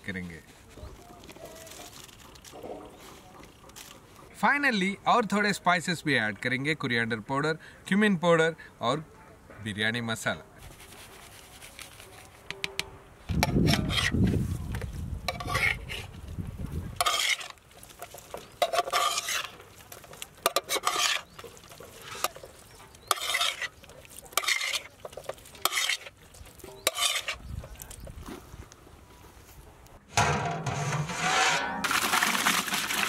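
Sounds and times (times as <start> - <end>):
mixing strokes in metal pot: 13.4 - 14.4, 15.3 - 16.2, 17.0 - 27.8.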